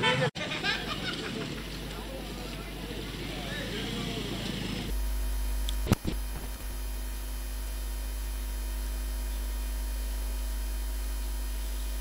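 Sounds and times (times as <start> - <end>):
low electrical hum: 4.9 - 12.0.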